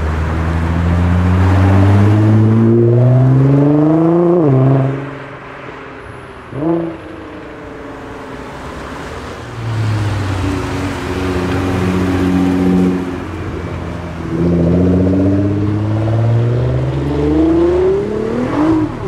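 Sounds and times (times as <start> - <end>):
car engine accelerating past: 0.1 - 5.2, 14.3 - 19.0.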